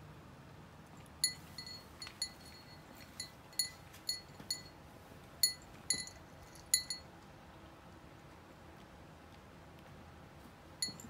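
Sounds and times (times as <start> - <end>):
collar pendant clinking on glass bowl: 1.2 - 4.8, 5.4 - 7.1.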